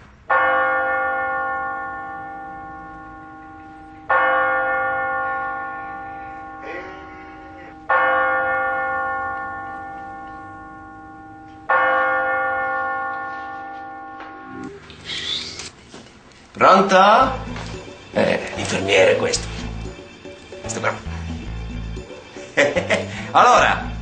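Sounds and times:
large bell tolling: 0.2 - 14.7.

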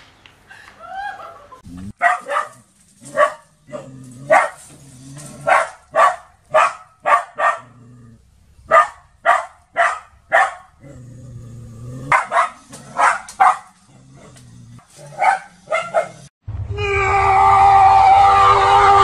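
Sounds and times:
small dog barking: 2.0 - 4.6, 5.4 - 7.8, 8.7 - 10.7, 12.1 - 13.8, 15.1 - 16.3.

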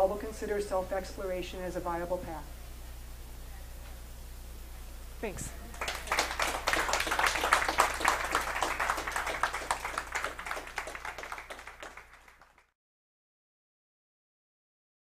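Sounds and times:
audience applauding: 5.7 - 12.7.

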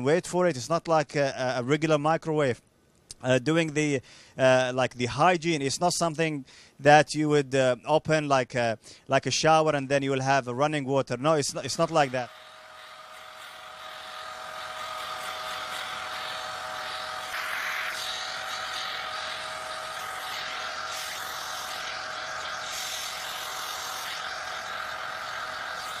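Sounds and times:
steady tones: 11.5 - 26.0
machine whir and rushing air: 11.8 - 26.0.

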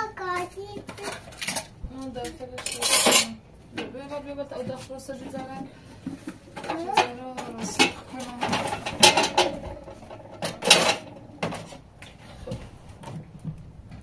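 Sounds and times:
metal pots clanking: 2.3 - 4.0, 5.4 - 11.9.

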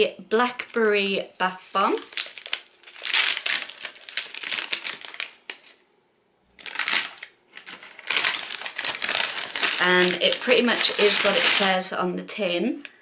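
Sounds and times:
paper bag crinkling: 1.6 - 5.8, 6.6 - 11.9.

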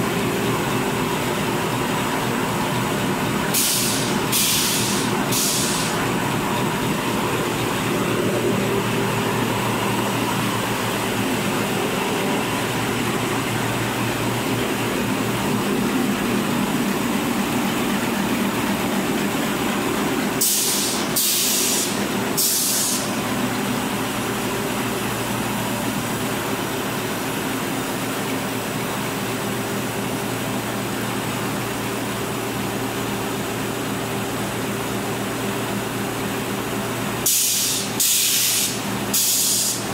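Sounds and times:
short sharp hisses: 3.6 - 6.0, 20.4 - 23.1, 37.3 - 39.9.

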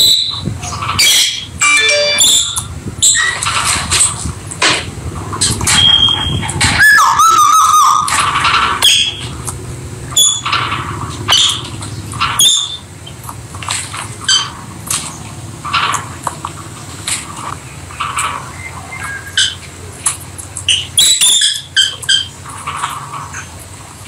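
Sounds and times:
wavering bird warble: 0.0 - 3.5, 5.7 - 9.4, 17.2 - 23.6
lovebirds chirping and squeaking: 0.0 - 4.2, 5.7 - 9.4, 10.2 - 10.6, 11.2 - 12.9, 18.4 - 23.6.

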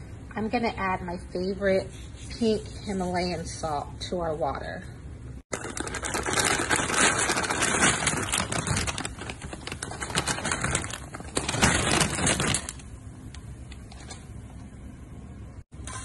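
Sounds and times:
pasta crackling into boiling water: 5.5 - 13.0.

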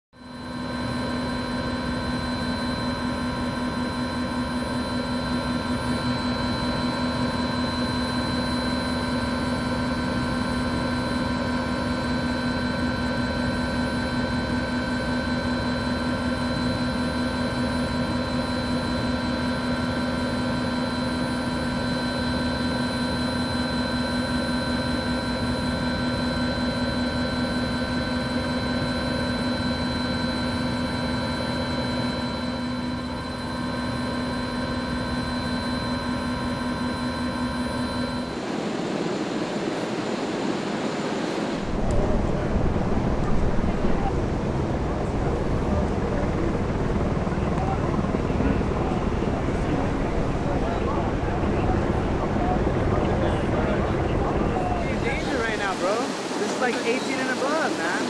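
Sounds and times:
helicopter engine and rotor drone: 0.1 - 58.0.

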